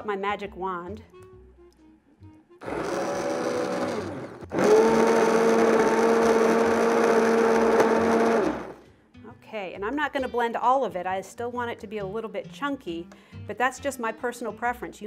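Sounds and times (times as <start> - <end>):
immersion blender running: 2.6 - 8.8.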